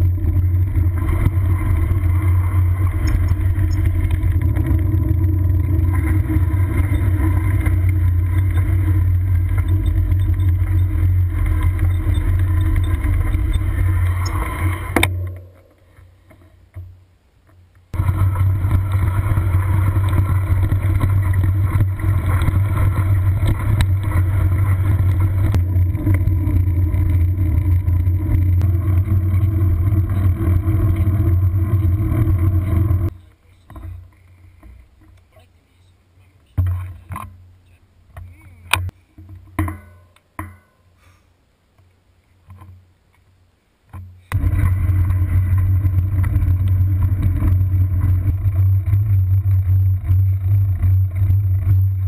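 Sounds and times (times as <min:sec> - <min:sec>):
wind rumble: 0:00.0 - 0:16.3, 0:17.9 - 0:33.1, 0:44.4 - 0:52.0
bicycle road noise: 0:00.0 - 0:39.7, 0:42.3 - 0:52.0.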